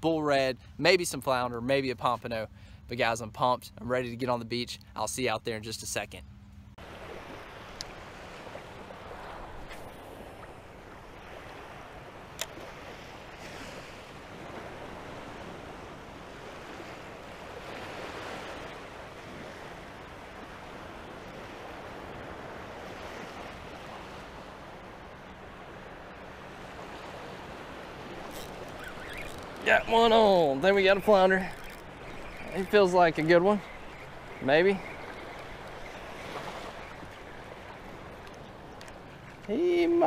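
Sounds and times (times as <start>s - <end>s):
small surf waves washing: 6.8s - 40.0s
sharp click: 12.4s - 12.6s.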